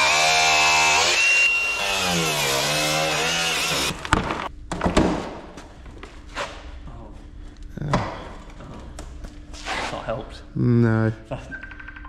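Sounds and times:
power tool motor running: 0.0 - 4.1.

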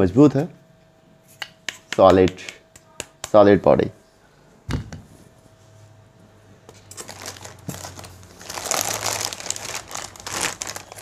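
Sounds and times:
plastic bag crinkling: 6.9 - 11.0.

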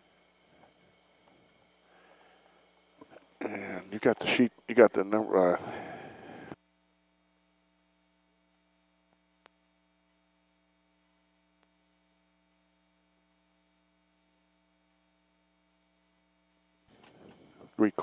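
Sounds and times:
faint electrical hum: 0.0 - 18.0
faint click: 9.1 - 9.6, 11.6 - 11.8.

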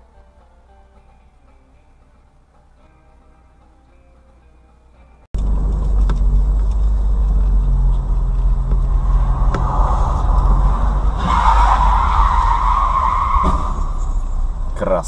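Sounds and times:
rushing noise: 5.4 - 14.8
car engine and road rumble: 5.4 - 15.0.

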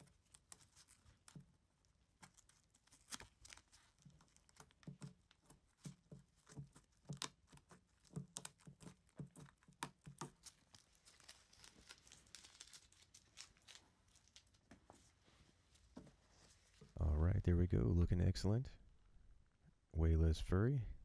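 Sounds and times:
tape peeling sticky crackles: 0.0 - 15.0
tape crinkling: 0.0 - 17.0.

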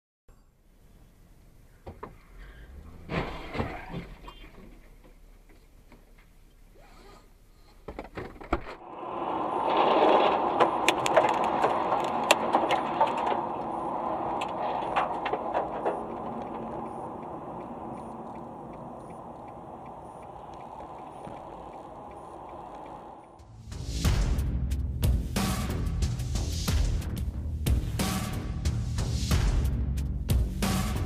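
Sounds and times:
road and tyre noise: 0.7 - 31.0
sharp clicks and knocks: 10.0 - 23.4
faint light tick: 15.2 - 23.4.

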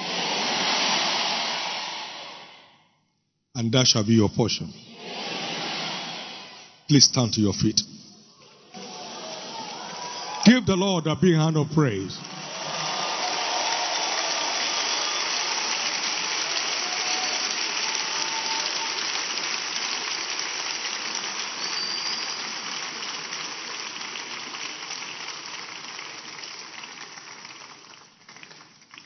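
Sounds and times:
congregation applauding: 0.0 - 2.6, 8.7 - 29.0.

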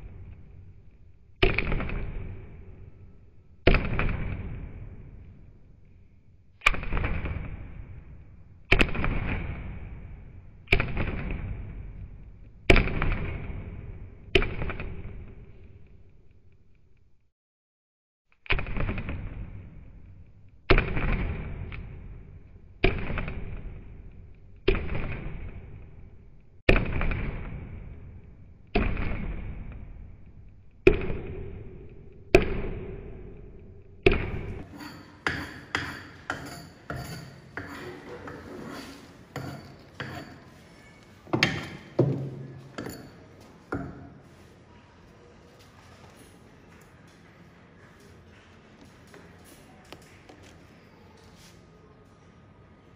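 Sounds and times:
wooden club pounding wooden block: 30.9 - 38.2, 39.3 - 40.4, 41.3 - 44.2.

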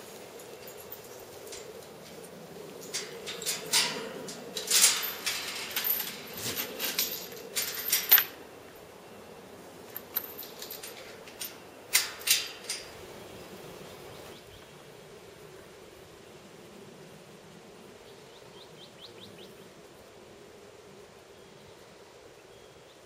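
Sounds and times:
metal gate hardware clinking: 0.4 - 8.4, 9.8 - 13.0.

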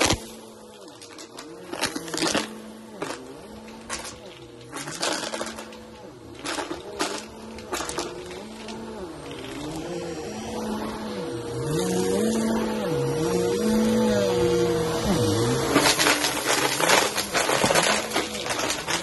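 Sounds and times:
vacuum cleaner running: 0.0 - 19.0.

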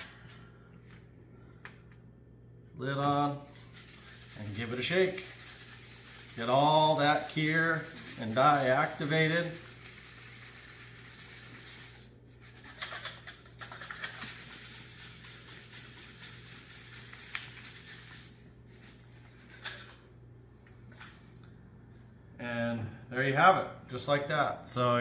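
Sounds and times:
steady low hum: 0.0 - 25.0
container being shaken: 3.4 - 19.6.

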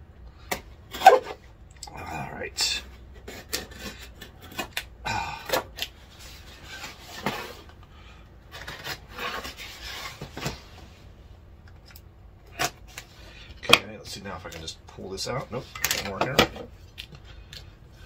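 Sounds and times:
knife cutting packing tape: 3.3 - 5.9.

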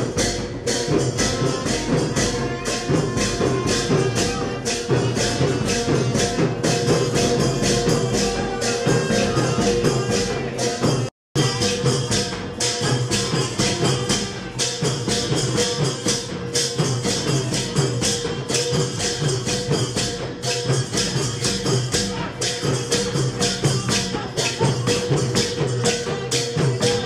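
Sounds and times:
long drums beating: 0.0 - 27.0
small hand cymbals: 0.0 - 27.0
wind instrument holding a note: 1.2 - 12.1.

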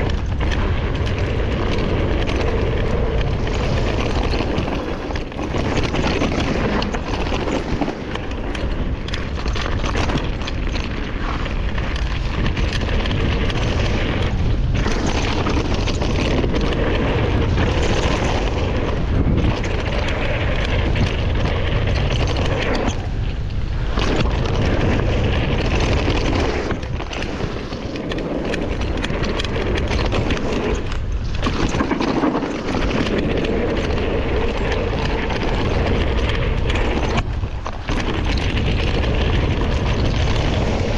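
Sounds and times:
bike rattling: 0.0 - 40.9
bike tyres rolling over dirt: 0.0 - 40.9
wind buffeting microphone: 0.0 - 40.9.

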